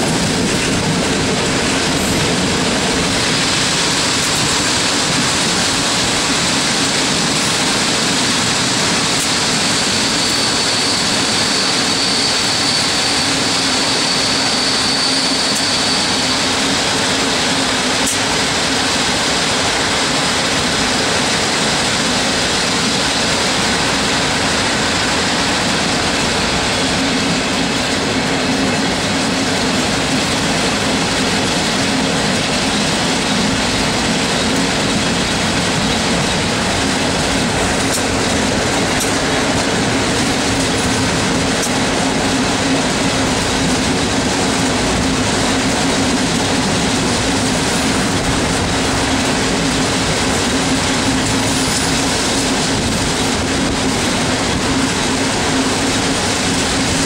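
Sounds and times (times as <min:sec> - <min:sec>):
train rumbling on rails: 0:00.0 - 0:57.0.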